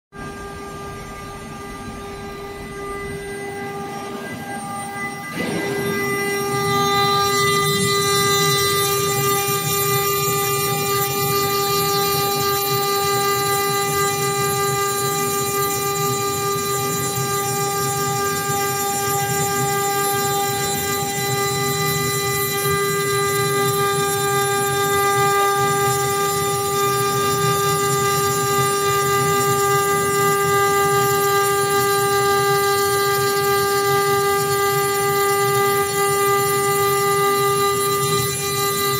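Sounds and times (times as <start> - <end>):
router spindle whine: 0.2 - 38.9
wood cutting noise: 2.7 - 11.9.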